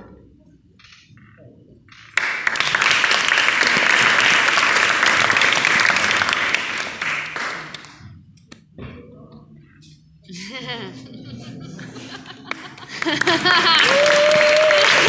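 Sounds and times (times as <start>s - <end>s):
audience applauding: 2.1s - 8.0s, 12.3s - 15.0s.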